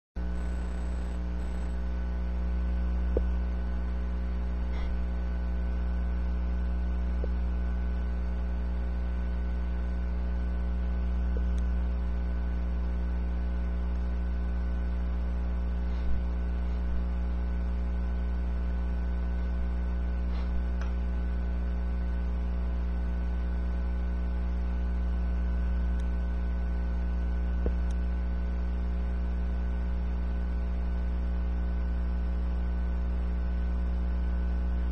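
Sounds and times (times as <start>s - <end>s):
faint high steady tones: 0.2s - 1.9s
electrical mains hum: 0.2s - 34.9s.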